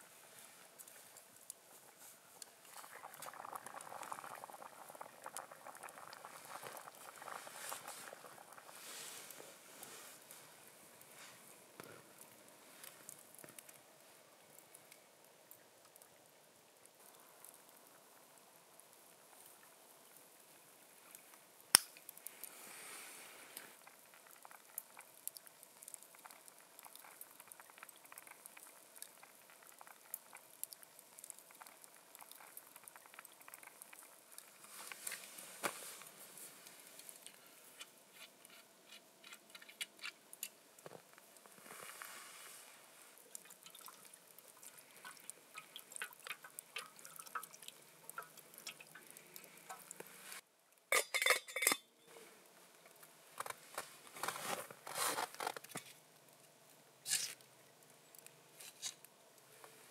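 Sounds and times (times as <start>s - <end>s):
campfire crackling: 0.0s - 59.9s
metal cookware clinking: 50.9s - 51.9s
pot knocking and clattering: 50.9s - 51.9s.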